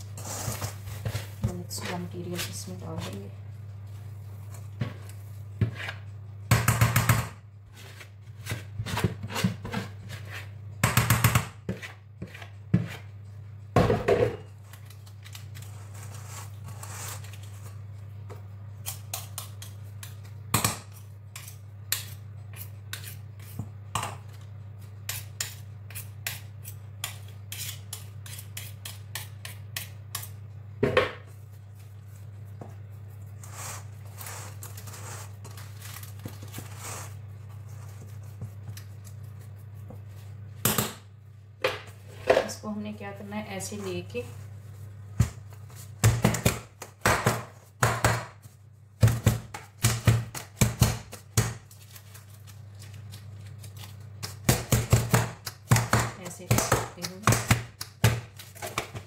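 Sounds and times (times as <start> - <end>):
utensil scraping a mixing bowl: 0.0 - 3.4, 32.2 - 40.4.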